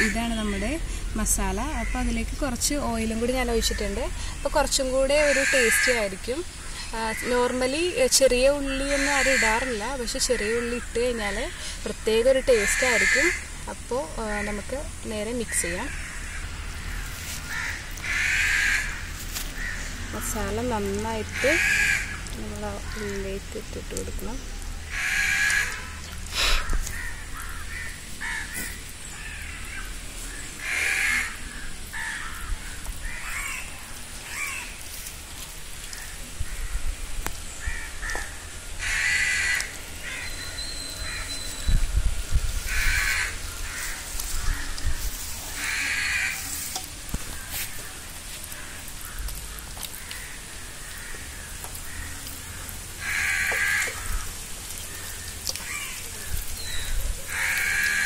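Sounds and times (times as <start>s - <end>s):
crows cawing: 5.1s - 7.5s, 8.7s - 10.9s, 12.6s - 13.5s, 15.5s - 20.3s, 21.3s - 22.2s, 24.9s - 34.8s, 37.6s - 40.3s, 42.6s - 56.0s, 56.6s - 58.0s.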